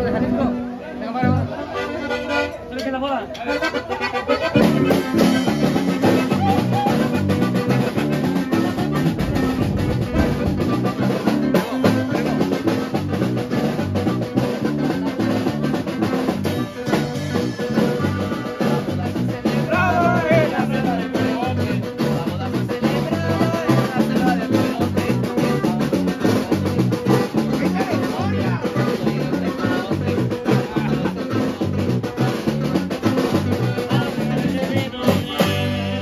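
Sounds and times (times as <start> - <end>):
acoustic guitar: 0.0 - 36.0
button accordion: 1.2 - 36.0
electric bass beat: 3.5 - 36.0
man singing: 4.4 - 9.0, 10.0 - 36.0.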